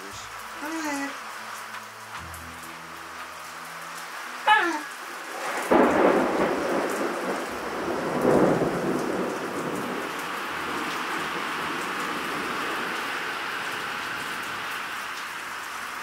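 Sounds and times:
heavy rain pouring: 0.0 - 16.0
thunder rumbling: 5.1 - 14.7.

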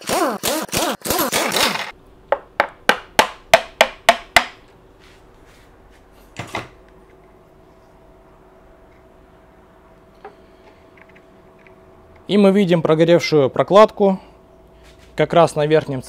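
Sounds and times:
impact wrench whirring: 0.0 - 2.0.

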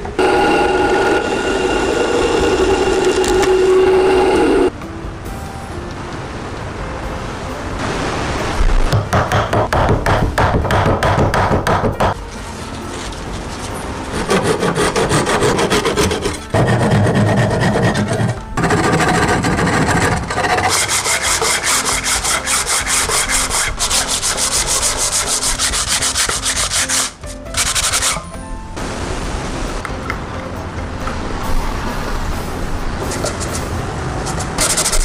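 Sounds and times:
sandpaper scratching on wood: 14.1 - 28.2, 33.1 - 35.0.

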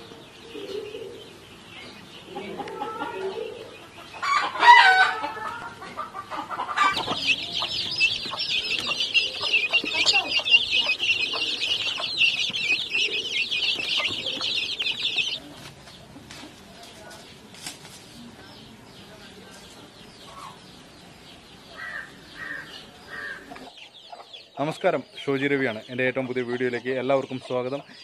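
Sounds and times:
chickens clucking: 0.0 - 17.5, 18.1 - 28.0
chicks peeping rapidly: 0.0 - 28.0
loud chicken call: 4.2 - 15.4.

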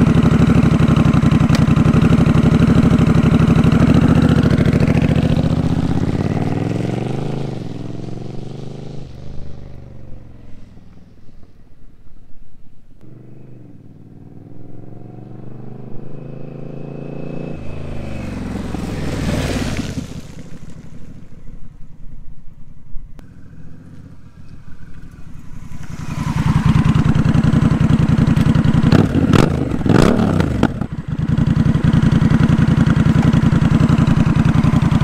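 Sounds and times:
motorcycle engine revving: 0.0 - 11.5, 13.0 - 21.5, 23.2 - 35.0
motorcycle engine passing: 0.0 - 11.9, 13.0 - 22.1, 23.2 - 35.0
motorcycle engine idling: 0.0 - 12.3, 20.2 - 35.0.

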